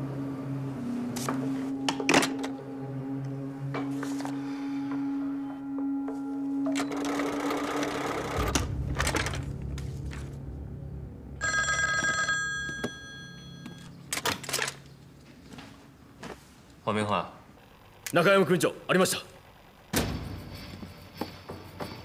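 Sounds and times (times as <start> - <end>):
telephone bell ringing: 11.4 - 14.0.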